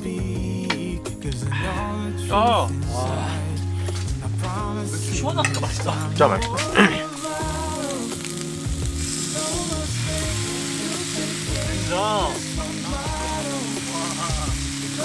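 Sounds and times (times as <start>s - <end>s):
background music: 0.0s - 15.0s
food sizzling in a pan: 3.8s - 15.0s.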